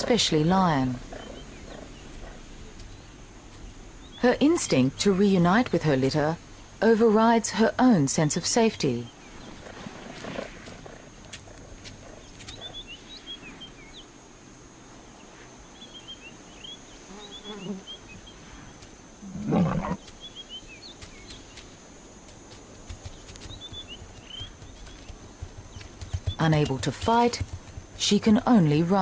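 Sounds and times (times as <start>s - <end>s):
big cat growling: 19.2s - 20.0s.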